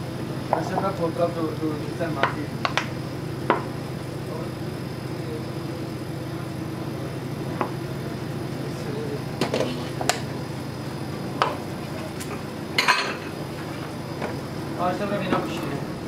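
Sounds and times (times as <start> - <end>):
low mechanical hum: 0.0 - 16.0
utensils and cookware clinking: 9.4 - 10.2, 11.4 - 14.4.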